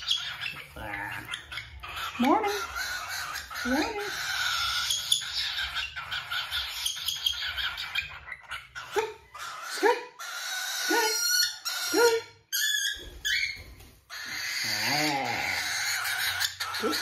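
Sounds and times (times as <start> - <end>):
cockatiel chirping: 0.0 - 12.0, 15.6 - 17.0.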